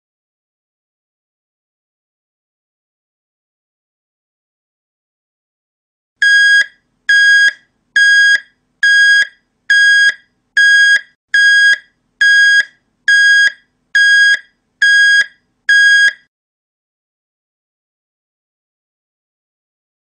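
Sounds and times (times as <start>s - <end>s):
electronic alarm beeps: 6.2s - 16.3s.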